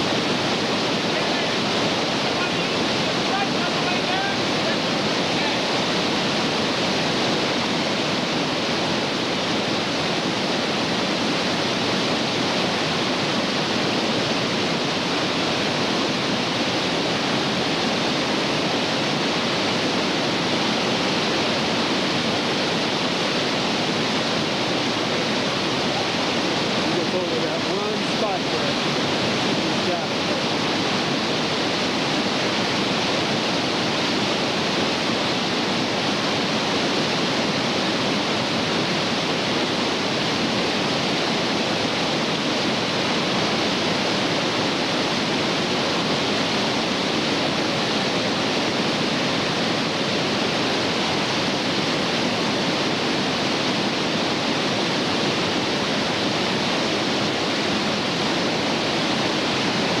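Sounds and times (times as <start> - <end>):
whitewater rapids rushing: 0.0 - 60.0.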